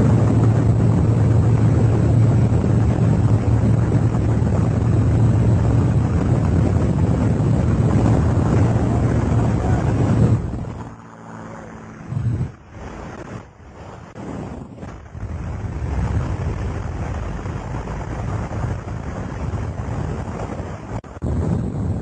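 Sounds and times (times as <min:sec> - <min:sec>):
small plane engine drone: 0:00.0 - 0:22.0
wind rushing: 0:00.0 - 0:22.0.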